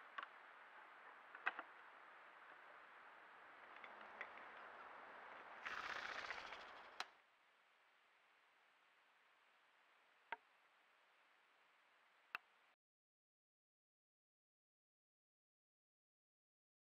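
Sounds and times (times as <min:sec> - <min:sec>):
bird wingbeats whirring: 0:05.4 - 0:07.0.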